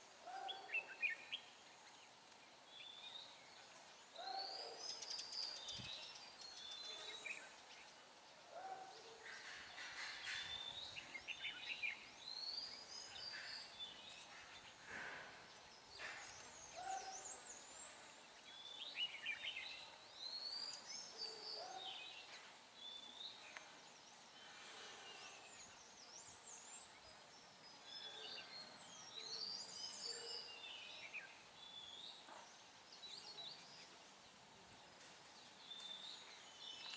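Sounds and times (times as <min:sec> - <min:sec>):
birds whistling calls: 0:16.0 - 0:17.7.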